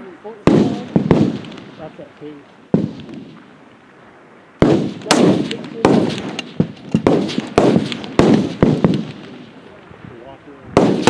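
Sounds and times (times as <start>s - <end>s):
rifle shots with echo: 0.4s - 2.0s, 2.7s - 3.5s, 4.6s - 9.6s, 10.8s - 11.0s.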